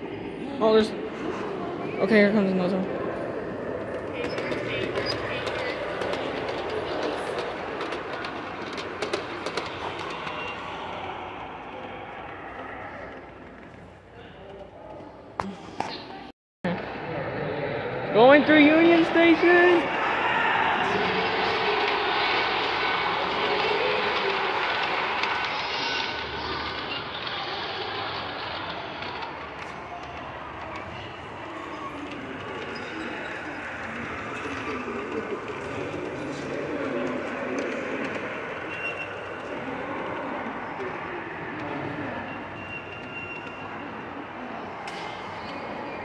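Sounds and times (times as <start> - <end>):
model train wheels rattling: 3.5 - 13.9
model train wheels clicking: 3.6 - 13.9, 21.0 - 41.6.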